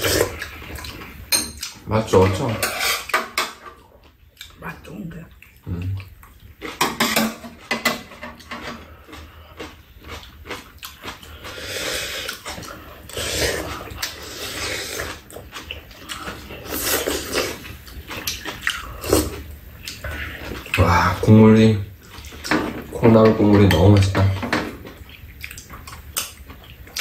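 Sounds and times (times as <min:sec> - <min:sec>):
people slurping soup: 0:00.0 - 0:01.1, 0:11.1 - 0:17.8
chewing: 0:03.9 - 0:04.6, 0:05.3 - 0:06.8, 0:08.4 - 0:21.2, 0:24.7 - 0:27.0.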